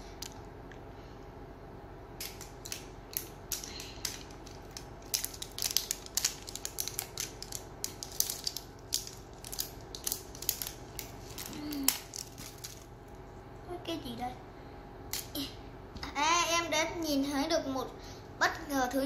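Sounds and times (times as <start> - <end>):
plastic wrapping crackling: 2.2 - 12.9.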